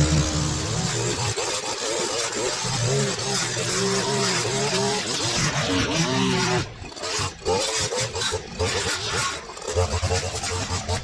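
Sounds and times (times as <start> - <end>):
line trimmer cutting grass: 0.0 - 11.0.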